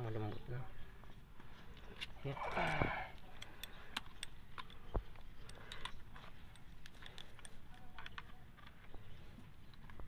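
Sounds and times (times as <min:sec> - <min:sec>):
metallic clicks and ticks: 0:03.2 - 0:08.9.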